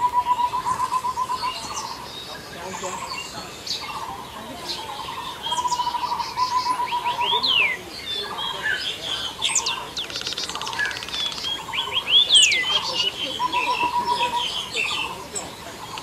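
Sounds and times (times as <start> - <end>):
birds chirping and whistling: 0.0 - 16.0
bird rapid trill: 4.8 - 15.2.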